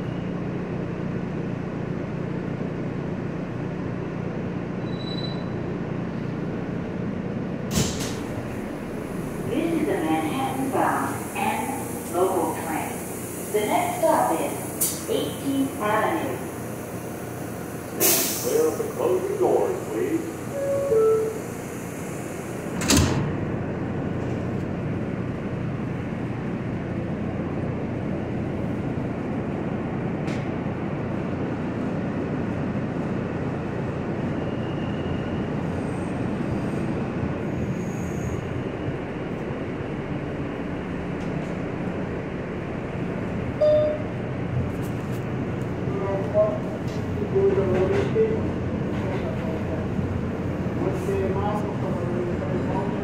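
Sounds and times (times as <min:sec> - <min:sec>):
train wheels and motors rumbling: 0:00.0 - 0:53.0
subway doors shutting thud: 0:07.4 - 0:27.0, 0:27.8 - 0:31.1.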